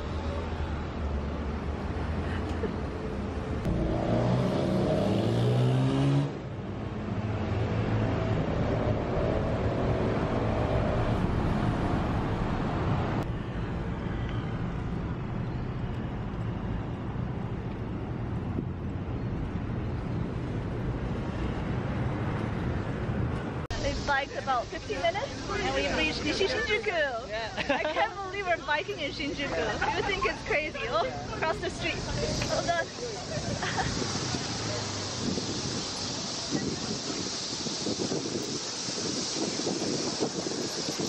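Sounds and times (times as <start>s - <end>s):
road traffic noise: 0.0s - 41.0s
vehicle engine accelerating: 3.6s - 13.2s.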